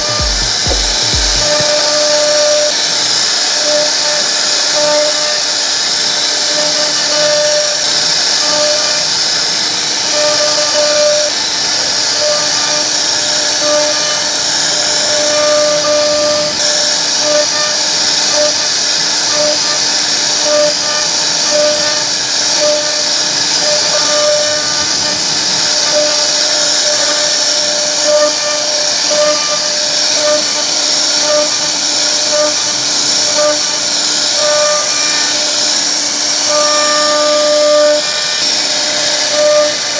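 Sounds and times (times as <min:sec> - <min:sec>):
short machine tones: 0:00.0 - 0:02.8, 0:19.3 - 0:39.9
router bit whining cutting wood: 0:00.0 - 0:39.9.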